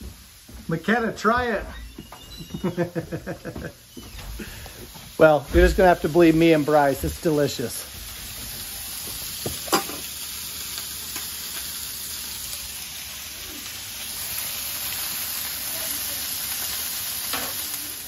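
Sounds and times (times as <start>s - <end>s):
meat sizzling in frying pans: 0.0s - 18.0s.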